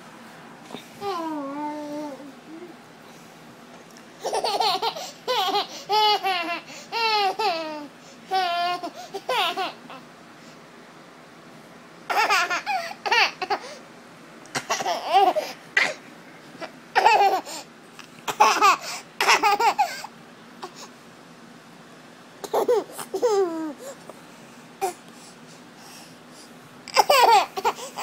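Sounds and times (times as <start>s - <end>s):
baby laughing: 4.2s - 10.0s, 12.1s - 13.8s, 14.6s - 16.0s, 16.6s - 20.1s, 22.4s - 24.0s, 26.9s - 28.0s.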